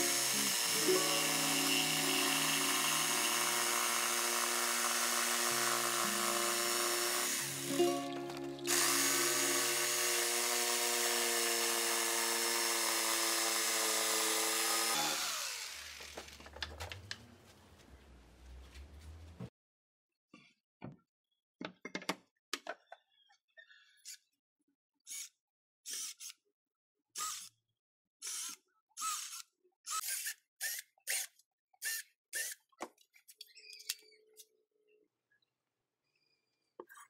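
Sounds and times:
jigsaw cutting wood: 0.0 - 7.8, 8.7 - 16.4.

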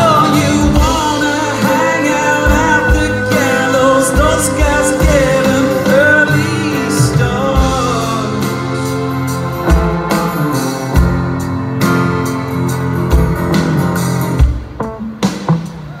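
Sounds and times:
man singing: 0.0 - 10.8
live band with strings and trumpets: 0.0 - 16.0.

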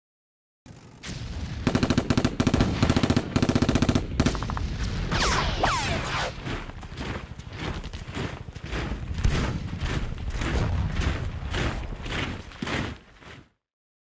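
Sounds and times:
automatic gunfire bursts: 1.6 - 4.5.

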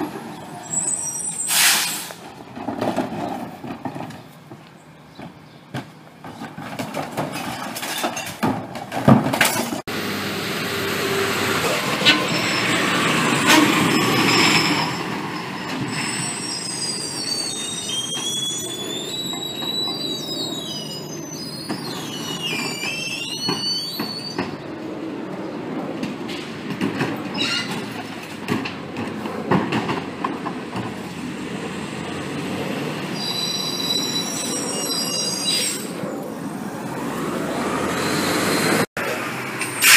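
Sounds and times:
high-pitched metal squealing: 11.6 - 24.6, 27.3 - 27.9, 33.2 - 36.0.

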